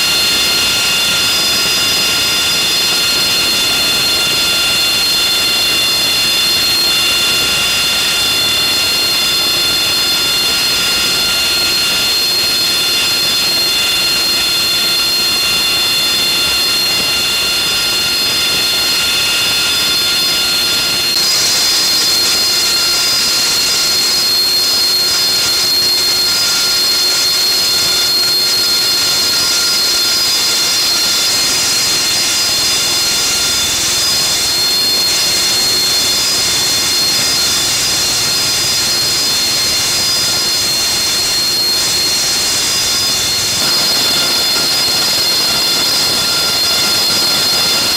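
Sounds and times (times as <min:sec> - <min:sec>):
high whistling tones: 0:00.0 - 0:47.9
jet engine turbine whine: 0:00.0 - 0:47.9.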